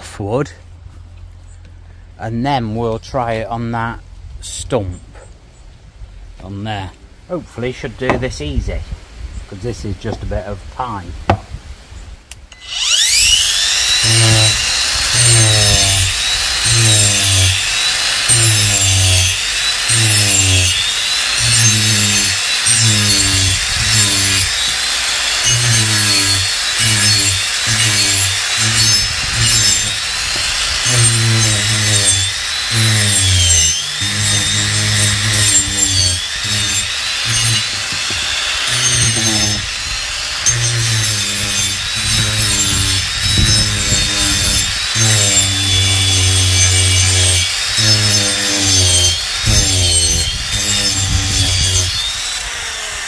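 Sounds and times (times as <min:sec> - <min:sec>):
angle grinder rasping wood: 0:12.5 - 0:53.0
grinder motor whine: 0:12.5 - 0:53.0.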